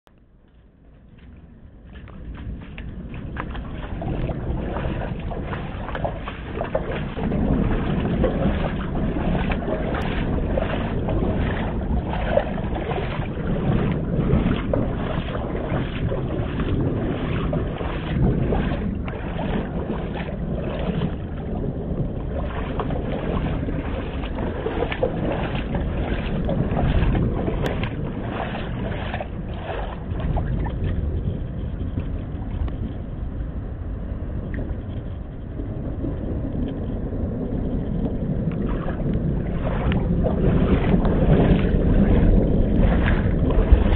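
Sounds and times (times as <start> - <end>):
steady low rumble: 0.0 - 43.9
rain falling on water: 0.1 - 33.4, 34.4 - 43.9.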